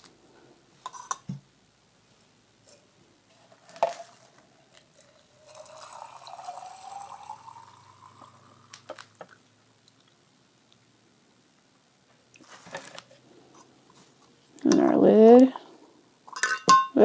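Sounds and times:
water pouring into a jar: 4.9 - 8.8.

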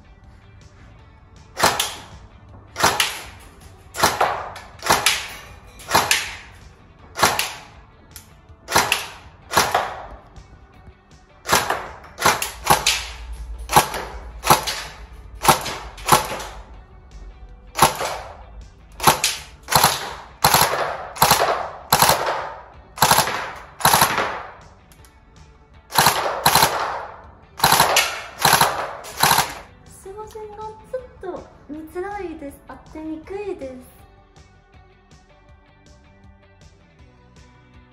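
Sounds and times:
airsoft gun shots echoing: 1.5 - 7.8, 8.7 - 10.3, 11.4 - 16.7, 17.7 - 24.7, 25.9 - 29.7.

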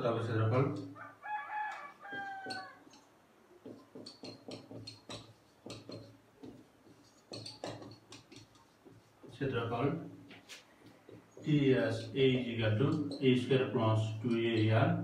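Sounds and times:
marker squeaking on whiteboard: 0.8 - 3.0, 3.6 - 9.5, 10.3 - 13.6.

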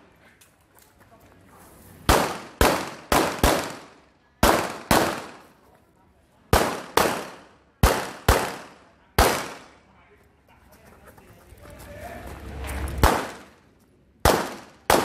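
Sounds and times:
pistol shots with echo: 2.1 - 5.5, 6.5 - 9.8, 13.0 - 13.6, 14.2 - 15.0.

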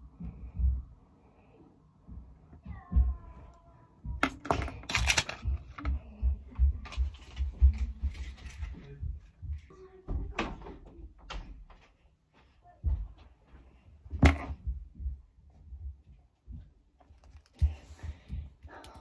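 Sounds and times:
handling clicks and knocks: 4.2 - 6.0
footsteps on floor: 11.6 - 16.8.

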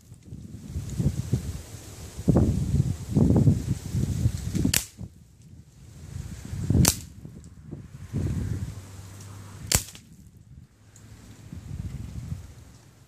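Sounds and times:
pellet rifle shots: 4.6 - 5.0, 6.8 - 7.1, 9.7 - 10.1.

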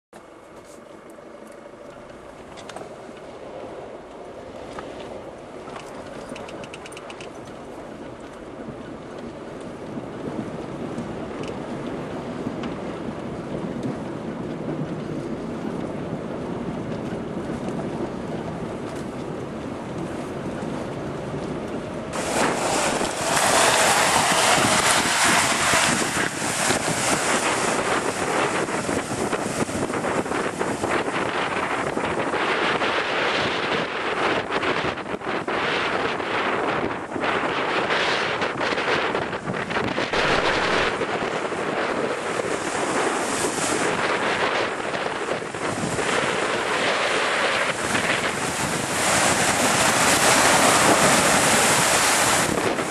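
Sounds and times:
wind buffeting microphone: 1.6 - 52.9
water rushing and splashing: 22.1 - 34.0, 39.5 - 52.9.

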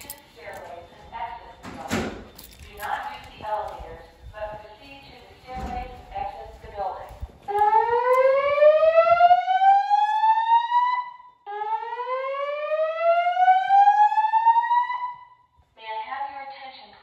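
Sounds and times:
slow whoop alarm tone: 7.6 - 15.4.

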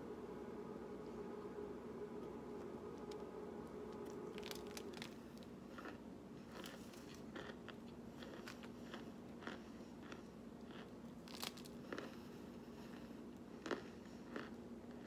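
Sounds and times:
steady low hum: 0.0 - 15.0
crunchy biting and chewing: 4.0 - 15.0.

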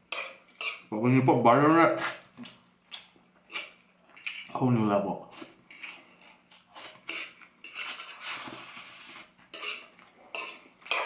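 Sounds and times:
chewing: 2.1 - 4.6, 5.4 - 11.0.

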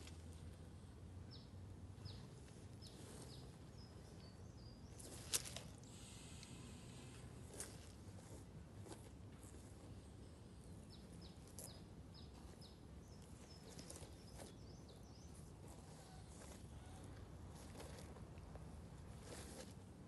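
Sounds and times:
bird chirping: 1.3 - 6.8, 9.9 - 17.2.

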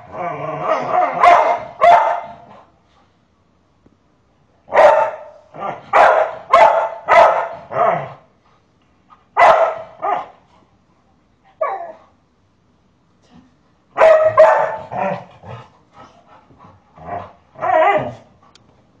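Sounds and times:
large dog barking: 0.6 - 2.6, 4.7 - 8.3, 9.4 - 10.4, 13.9 - 15.6, 17.0 - 18.3.

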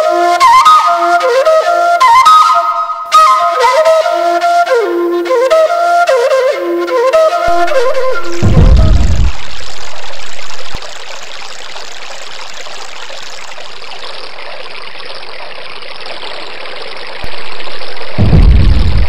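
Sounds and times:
stream water running: 0.0 - 19.0.

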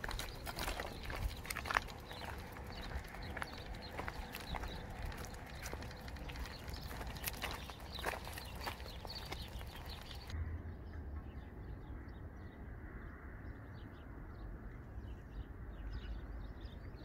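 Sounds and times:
footsteps on dirt track: 0.0 - 10.4
small birds chirping: 0.0 - 10.4
steady low rumble: 0.0 - 14.7.

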